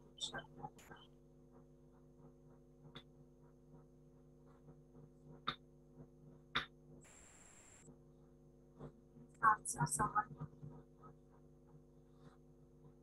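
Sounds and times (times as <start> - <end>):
faint electrical hum: 7.1 - 13.0.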